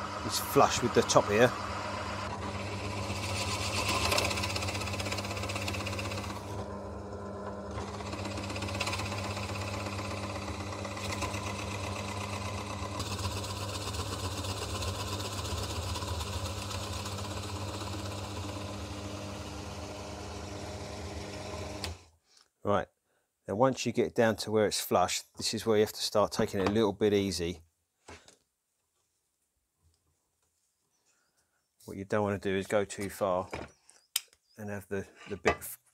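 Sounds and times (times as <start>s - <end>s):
drill motor hum: 0.0s - 22.1s
drill bit rasping into wood: 0.1s - 6.6s, 7.5s - 22.0s.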